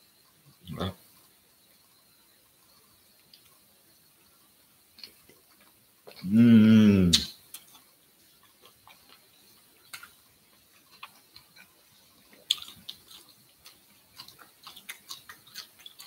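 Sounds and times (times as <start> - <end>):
person chewing food: 5.0 - 6.4, 7.0 - 16.0.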